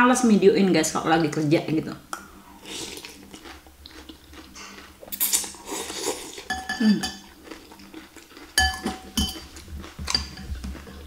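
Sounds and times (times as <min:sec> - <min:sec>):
cutlery clinking against glass bowl: 0:06.5 - 0:07.3, 0:08.6 - 0:10.6.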